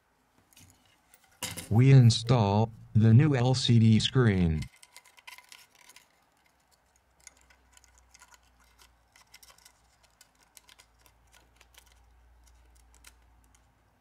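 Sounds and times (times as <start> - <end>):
low steady hum: 0.0 - 14.0
small clicks of handled phone parts: 4.6 - 13.7.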